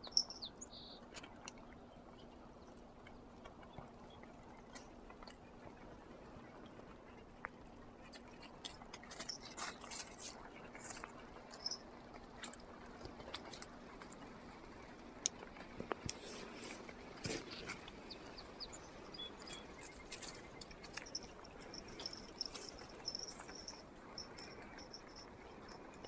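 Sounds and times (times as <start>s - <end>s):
cat moving through twigs and snow: 8.4s - 11.8s, 12.4s - 24.1s.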